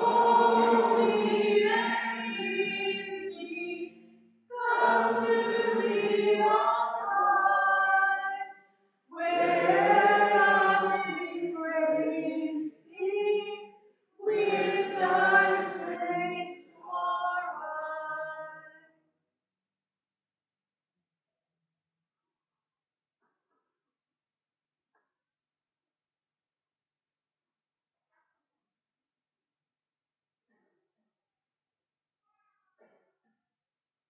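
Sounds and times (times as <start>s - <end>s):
choir singing a hymn: 0.0s - 3.9s, 4.5s - 8.4s, 9.2s - 13.6s, 14.2s - 18.1s.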